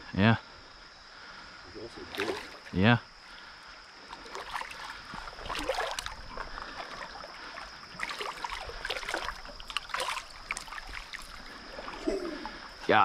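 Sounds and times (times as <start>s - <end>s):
high insect drone: 0.0s - 13.0s
water splashing and trickling: 1.7s - 13.0s.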